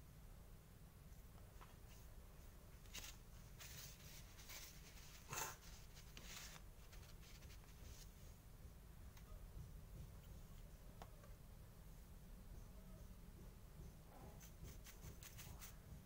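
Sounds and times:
low steady hum: 0:00.0 - 0:16.0
soft rustles: 0:01.4 - 0:08.4.

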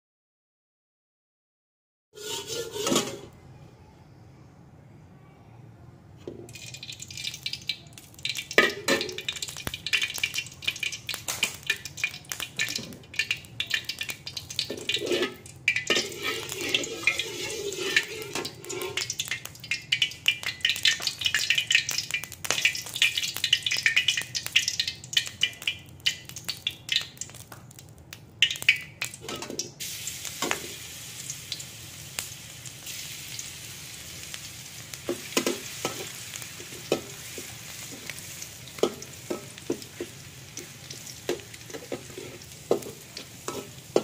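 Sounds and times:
oil sizzling: 0:02.2 - 0:03.3, 0:06.2 - 0:44.0
metal spatula scraping a wok: 0:02.2 - 0:03.4, 0:14.6 - 0:19.2, 0:35.1 - 0:44.0.

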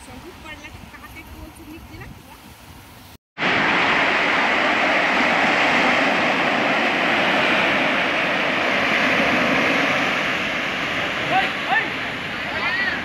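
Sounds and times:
wind: 0:00.0 - 0:13.0
sea water rushing: 0:03.4 - 0:13.0.

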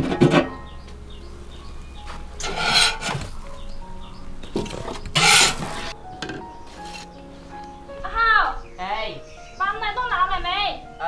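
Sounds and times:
soft background music: 0:00.0 - 0:11.0
short rasping scrapes: 0:02.4 - 0:03.4, 0:04.6 - 0:06.0.

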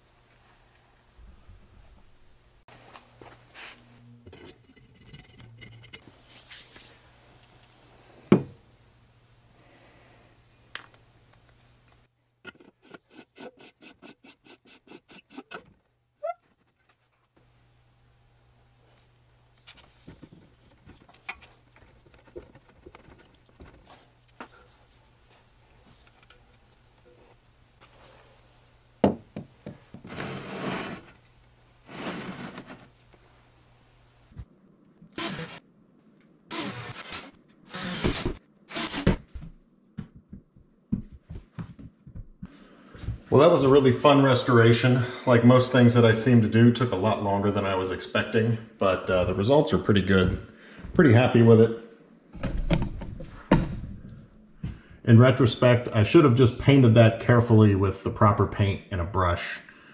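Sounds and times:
metal parts rubbing and scraping: 0:03.6 - 0:06.9
short squeak: 0:16.2 - 0:16.6.

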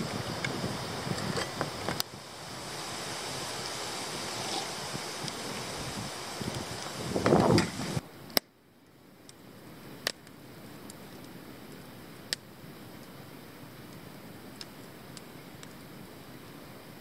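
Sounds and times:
sharp fire pops: 0:00.0 - 0:02.2, 0:04.4 - 0:08.5, 0:09.2 - 0:13.2
rushing noise: 0:00.0 - 0:08.0
campfire crackling: 0:00.0 - 0:17.0.

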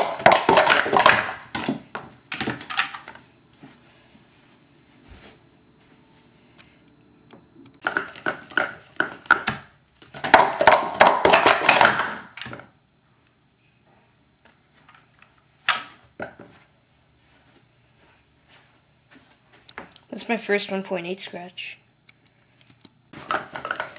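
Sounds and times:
plastic cups rattling clatter: 0:00.0 - 0:03.2, 0:07.8 - 0:12.6, 0:23.2 - 0:23.9.

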